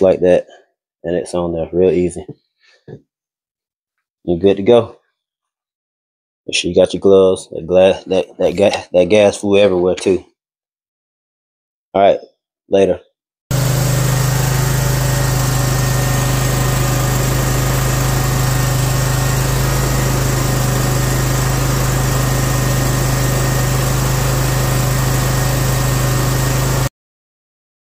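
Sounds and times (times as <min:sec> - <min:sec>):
mower engine running: 0:13.5 - 0:26.9.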